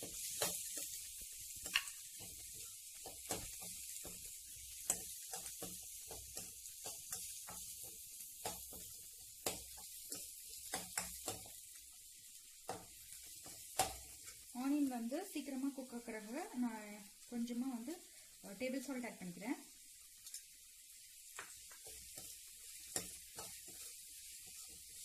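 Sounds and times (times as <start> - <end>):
spoon tapping a pan: 0.0 - 11.8, 12.6 - 14.4, 21.3 - 25.0
onions sizzling in hot oil: 0.0 - 25.0.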